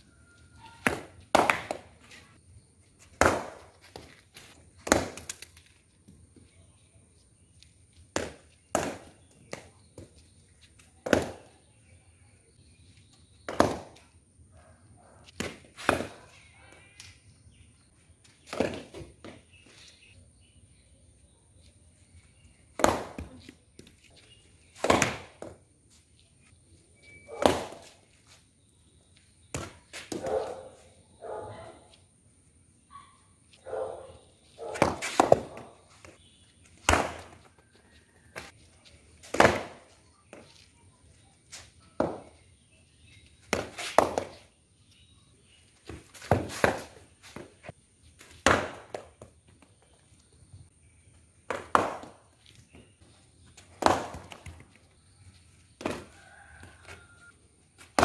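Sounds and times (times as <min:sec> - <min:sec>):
ball bouncing on concrete: 0:00.6 - 0:02.1, 0:03.0 - 0:06.5, 0:07.6 - 0:11.7, 0:13.3 - 0:14.2, 0:15.2 - 0:17.2, 0:18.2 - 0:19.8, 0:22.6 - 0:25.7, 0:27.3 - 0:28.3, 0:29.2 - 0:31.4, 0:33.5 - 0:40.7, 0:41.5 - 0:42.6, 0:43.3 - 0:44.6, 0:45.8 - 0:50.0, 0:51.4 - 0:55.0, 0:55.7 - 0:58.0
cricket ball hitting bat: 0:00.8 - 0:01.9, 0:03.1 - 0:03.8, 0:08.2 - 0:09.6, 0:11.0 - 0:11.5, 0:13.5 - 0:14.0, 0:18.5 - 0:19.1, 0:22.8 - 0:23.4, 0:24.8 - 0:25.6, 0:34.7 - 0:35.7, 0:36.8 - 0:37.4, 0:39.2 - 0:39.9, 0:42.0 - 0:42.4, 0:43.5 - 0:44.4, 0:48.4 - 0:49.2, 0:51.5 - 0:52.2, 0:53.8 - 0:54.6.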